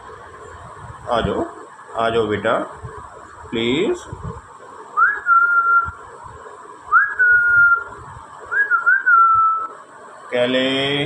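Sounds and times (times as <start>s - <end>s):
person whistling: 5.0s - 6.0s, 6.9s - 7.9s, 8.5s - 9.7s.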